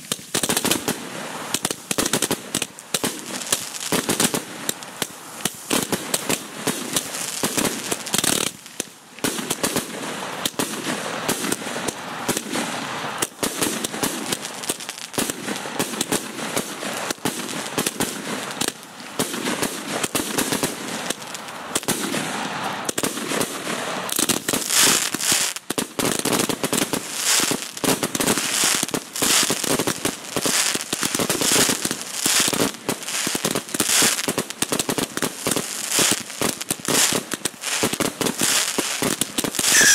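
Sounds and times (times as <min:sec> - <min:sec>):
fireworks crackling and popping: 0:00.0 - 0:39.9
sharp shots: 0:39.6 - 0:39.9.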